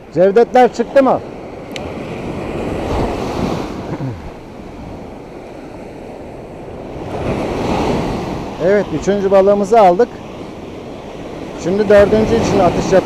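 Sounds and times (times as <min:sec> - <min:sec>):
surf washing up sand: 0:00.0 - 0:13.0.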